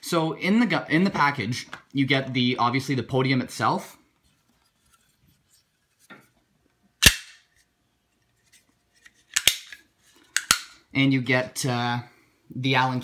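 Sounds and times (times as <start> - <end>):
plastic parts clicking: 9.3 - 10.8.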